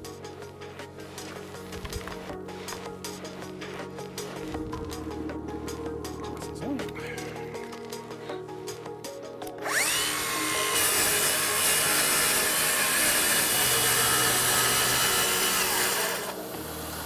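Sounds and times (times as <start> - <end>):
circular saw whining: 9.6 - 17.0.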